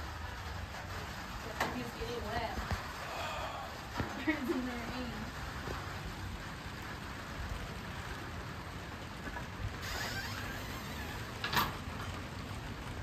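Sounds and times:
rain on plastic roof panels: 0.0s - 13.0s.

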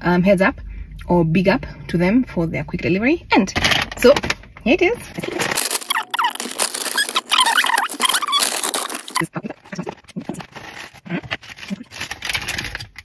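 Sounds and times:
paper bag rustling and crinkling: 5.1s - 13.0s
paper squeaks: 5.2s - 12.7s.

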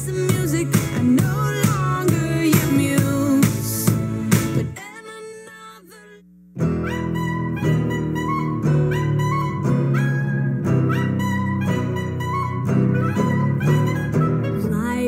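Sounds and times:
upbeat show tune music: 0.0s - 4.8s.

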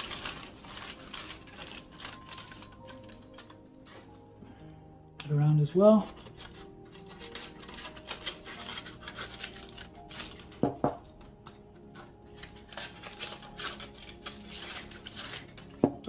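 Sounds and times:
scissors snipping foil: 0.0s - 4.6s, 5.2s - 16.0s
foil crinkling and tearing: 0.0s - 16.0s
quiet background music: 0.0s - 16.0s.

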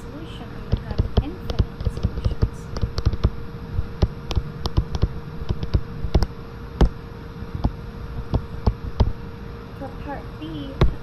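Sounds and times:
faint steady hum: 0.0s - 11.0s
stylus tapping on tablet screen: 0.7s - 3.4s, 4.0s - 7.0s.

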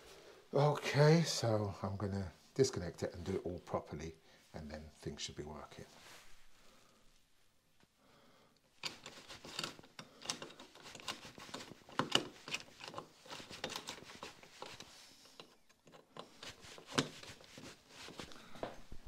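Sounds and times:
wiring clicks and taps: 8.8s - 17.4s.

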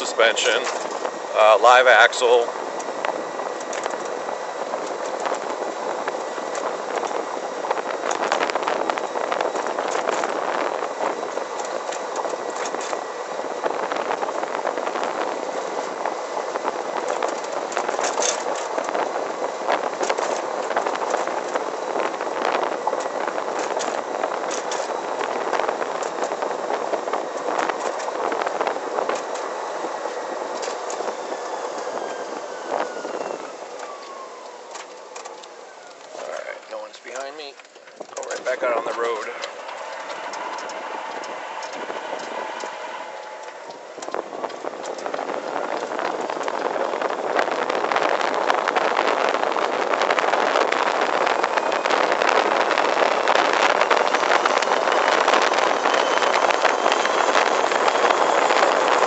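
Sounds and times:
electric motor whine: 0.0s - 59.0s
tyre and wind noise: 0.0s - 59.0s
chassis rattles and clicks: 33.7s - 47.7s.

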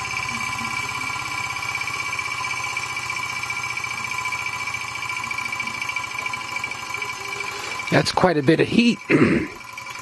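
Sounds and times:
high ringing whine: 0.0s - 10.0s
piston strokes pulsing: 0.0s - 10.0s
stirling engine running: 0.0s - 10.0s.

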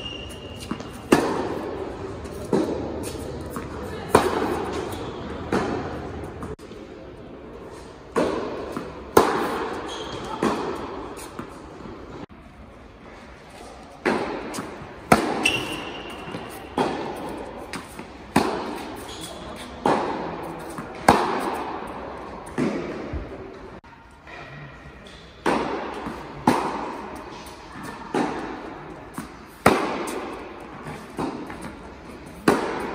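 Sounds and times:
rackets striking tennis ball: 0.0s - 6.8s, 8.1s - 12.2s, 13.9s - 23.4s, 25.4s - 32.9s.

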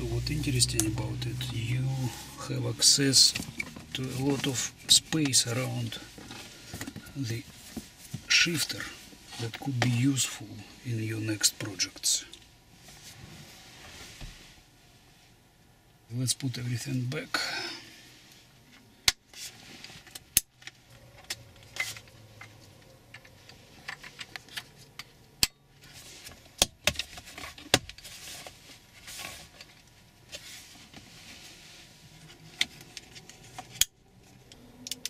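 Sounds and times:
rustling: 25.8s - 34.5s.

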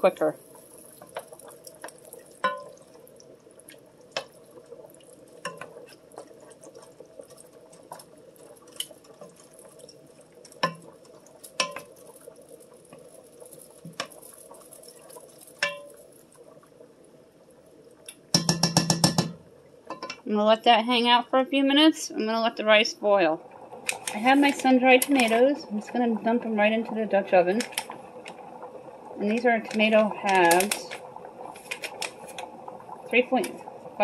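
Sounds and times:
spoon knocking against pot: 2.4s - 2.7s, 18.3s - 20.2s
wooden spoon stirring thick mixture: 3.6s - 16.0s.

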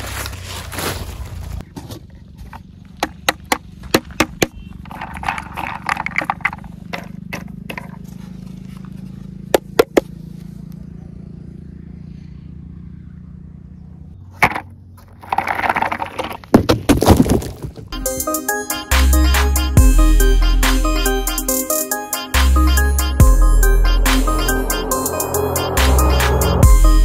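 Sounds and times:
wooden toy clicking and knocking: 3.0s - 8.0s.

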